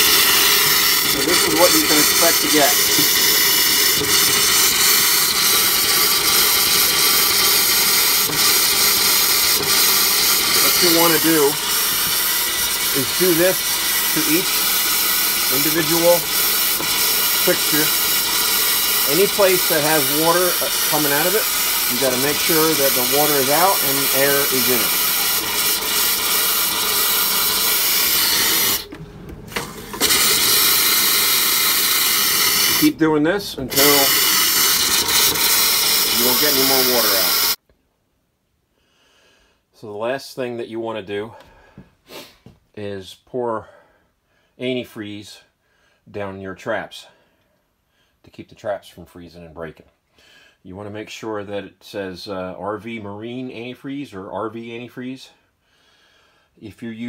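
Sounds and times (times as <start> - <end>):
compressed air hissing: 0.0 - 37.6, 42.1 - 42.4
short spits: 42.1 - 42.5.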